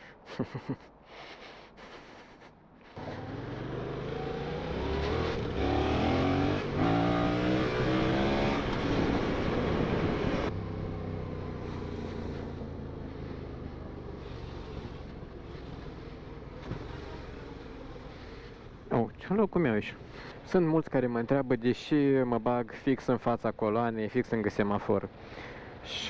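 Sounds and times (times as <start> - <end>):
motorcycle engine accelerating: 3.0 - 18.9.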